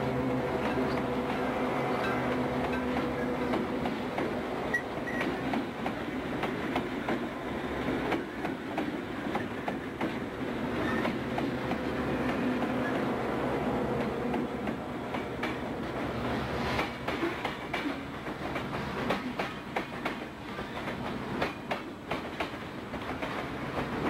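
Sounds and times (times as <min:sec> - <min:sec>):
diesel locomotive engines running: 0:00.0 - 0:17.5
wheels clicking over rail joints: 0:00.6 - 0:13.0, 0:16.7 - 0:24.0.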